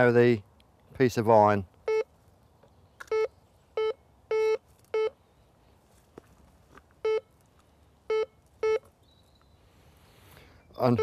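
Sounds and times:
metal detector low beeps: 1.9 - 2.1, 3.0 - 5.2, 7.0 - 7.3, 8.1 - 8.9.

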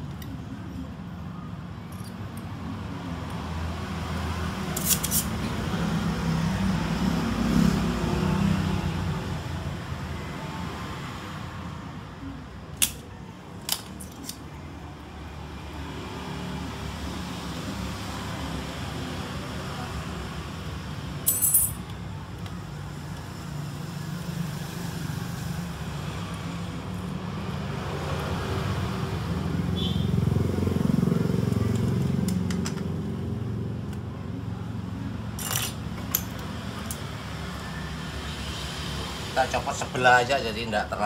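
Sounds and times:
metallic jingle: 21.2 - 21.8
metal objects clinking: 21.2 - 21.9, 35.4 - 36.4.

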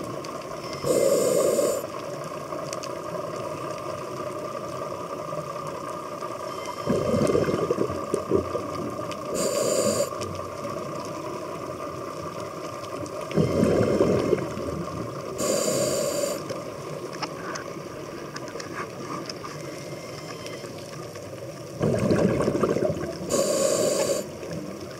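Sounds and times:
regulator inhale hiss: 0.8 - 2.0, 9.3 - 10.3, 15.4 - 16.6, 23.3 - 24.5
exhaled bubbles rumbling: 6.8 - 17.8, 21.5 - 24.9.

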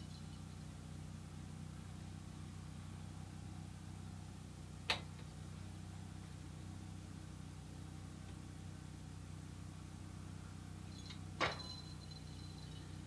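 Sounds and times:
small bell ding: 0.0 - 0.7, 10.9 - 13.0
steady low hum: 0.0 - 13.0.

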